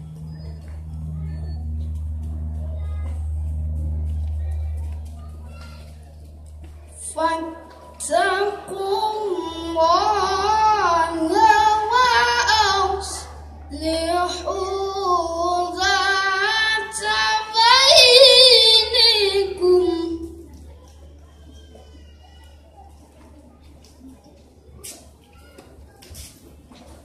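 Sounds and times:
boy reciting melodically into microphone: 7.0s - 20.5s.

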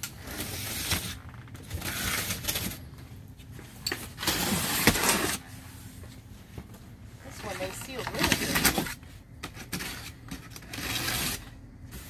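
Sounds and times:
box cutter slicing packing tape: 4.2s - 5.4s, 8.2s - 11.5s.

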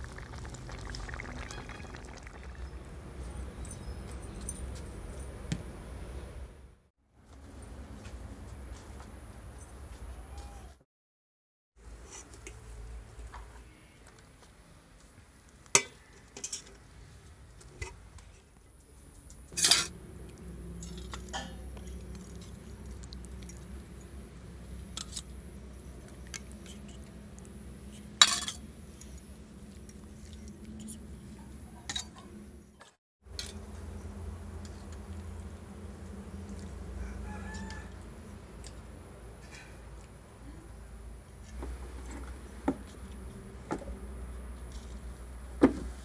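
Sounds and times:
metal spoons clinking on pots: 28.2s - 28.6s.

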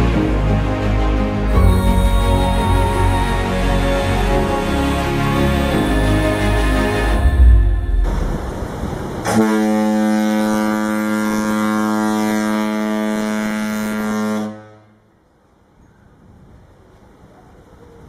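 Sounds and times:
ship's horn blast: 1.5s - 15.0s.

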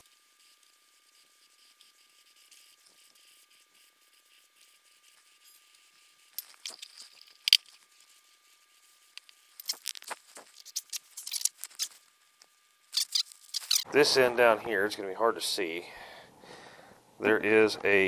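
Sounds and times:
rag rubbing shaft: 13.0s - 13.9s.

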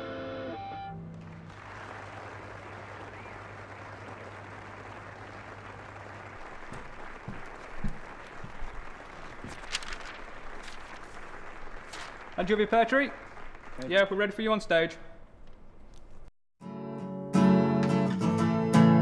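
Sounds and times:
audience applauding: 0.9s - 14.7s.

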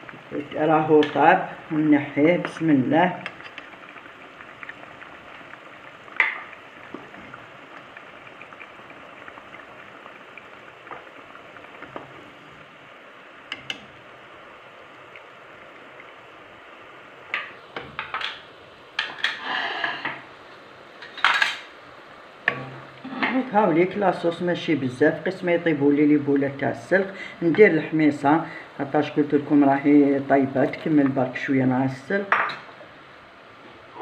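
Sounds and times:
sauce bubbling: 0.0s - 34.0s
utensils clinking on pot: 19.0s - 20.2s, 21.0s - 21.7s.

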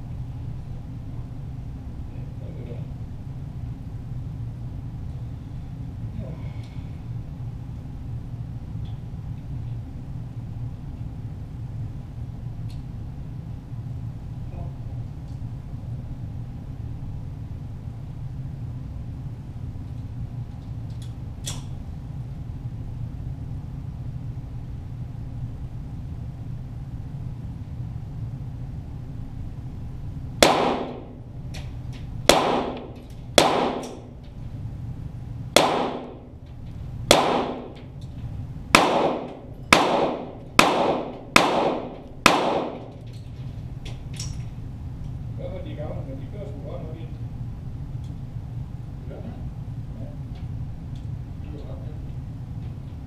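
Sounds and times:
steady low hum: 0.0s - 53.0s
pistol shots: 30.4s - 31.2s, 32.2s - 34.1s, 35.6s - 36.4s, 37.1s - 37.9s, 38.7s - 43.0s.

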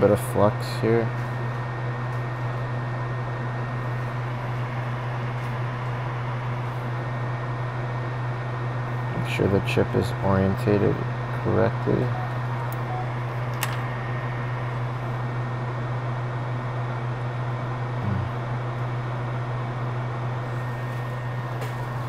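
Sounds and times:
low electrical hum: 0.0s - 22.0s
fan-like hiss: 19.8s - 22.0s.

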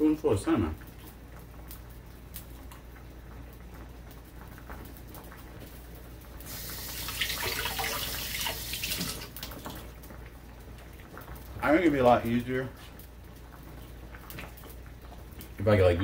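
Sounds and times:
kitchen tap running: 6.4s - 10.0s.

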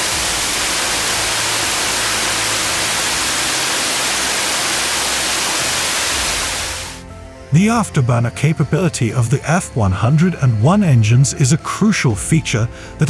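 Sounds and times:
jet engine roaring with afterburner: 0.0s - 7.0s.

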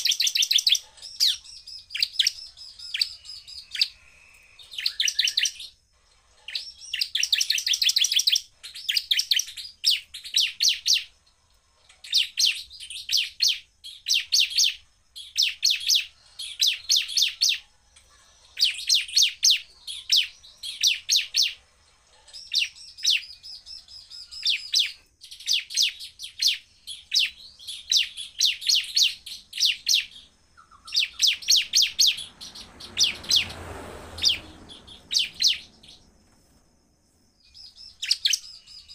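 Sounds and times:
bird singing high-pitched notes: 0.0s - 5.8s, 22.4s - 33.6s.

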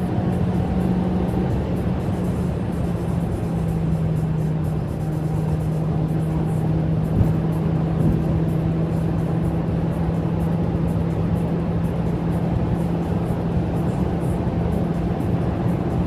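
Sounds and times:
car engine and exhaust droning: 0.0s - 16.0s
road and wind noise: 0.0s - 16.0s.

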